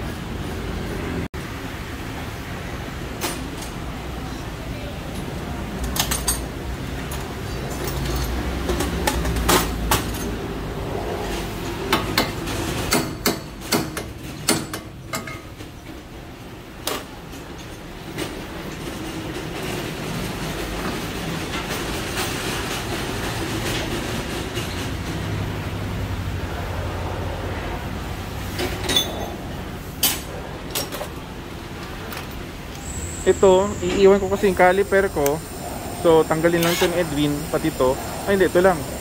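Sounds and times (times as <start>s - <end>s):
metal tools clanking: 5.1s - 10.4s, 28.6s - 31.2s, 36.4s - 37.6s.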